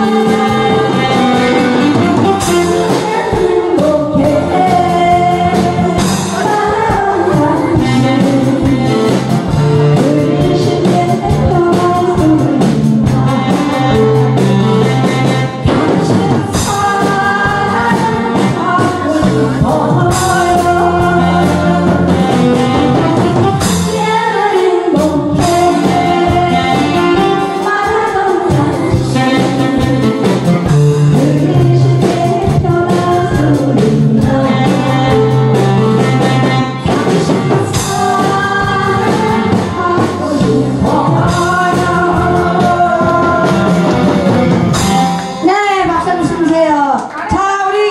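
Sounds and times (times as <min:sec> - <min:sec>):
woman singing into a microphone: 0:00.0 - 0:22.8, 0:23.5 - 0:47.9
amplified instrumental accompaniment: 0:00.0 - 0:47.0.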